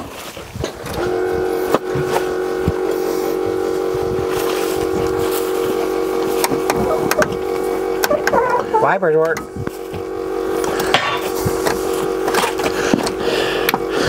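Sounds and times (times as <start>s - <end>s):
electrical whine: 0.0s - 14.0s.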